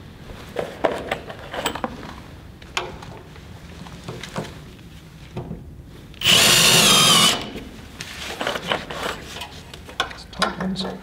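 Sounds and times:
drill motor whine: 0:06.2 - 0:07.5.

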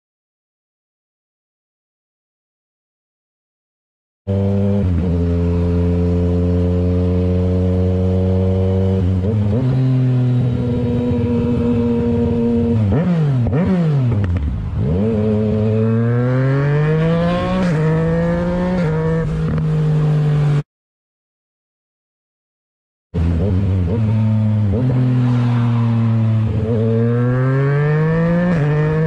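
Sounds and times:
motorcycle engine revving: 0:04.3 - 0:20.6, 0:23.2 - 0:29.0.

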